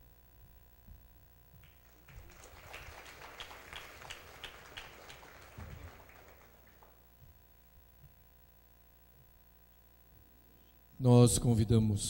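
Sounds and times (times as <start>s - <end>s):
audience applause: 1.6s - 7.0s.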